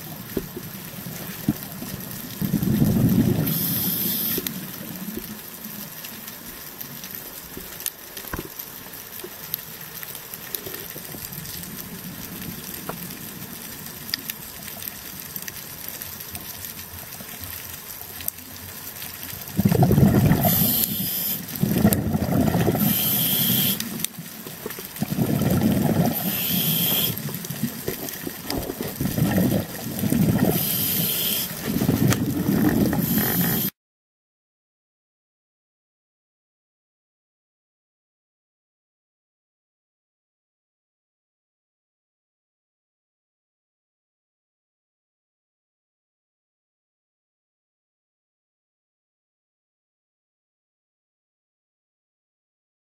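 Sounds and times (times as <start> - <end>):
steady underwater hiss: 0.0 - 33.8
exhaust bubbles rushing: 2.4 - 3.5, 19.5 - 24.0, 24.6 - 31.0, 31.6 - 33.6
diver breathing through regulator: 3.0 - 4.6, 19.6 - 24.0, 25.0 - 27.3, 29.0 - 33.8
short high hisses: 3.5 - 4.4, 20.4 - 21.4, 22.8 - 23.9, 26.2 - 27.2, 30.5 - 31.6.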